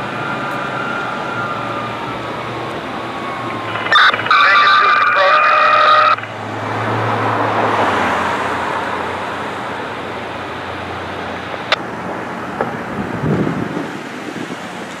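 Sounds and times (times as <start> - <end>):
fire engine driving away: 0.0 - 15.0
traffic noise: 0.0 - 15.0.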